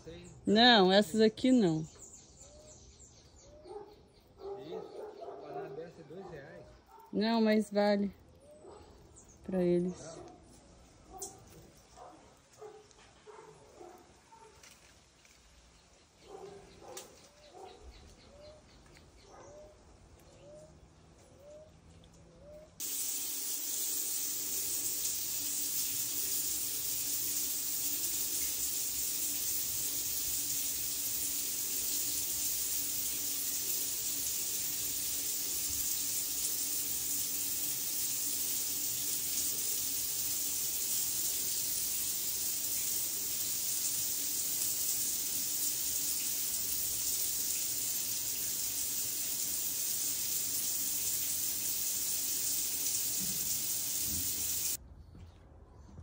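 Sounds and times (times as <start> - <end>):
steady hiss: 22.8 - 54.8.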